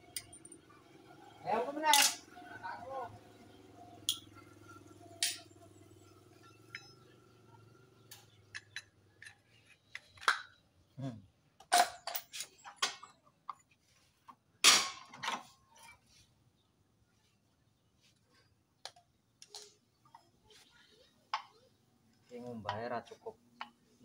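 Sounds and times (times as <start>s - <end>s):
metal parts clinking and knocking: 0.0s - 0.7s, 1.9s - 2.3s, 4.1s - 5.6s, 6.4s - 7.2s, 11.6s - 13.6s.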